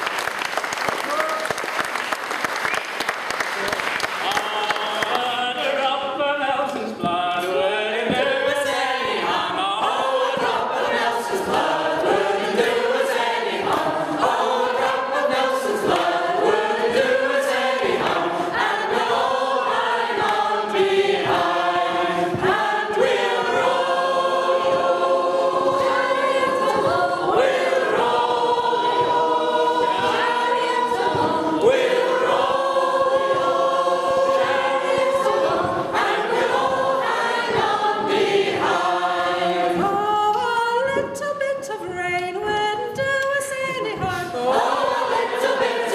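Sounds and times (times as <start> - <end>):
choir singing in harmony: 4.2 - 40.5, 43.8 - 45.9.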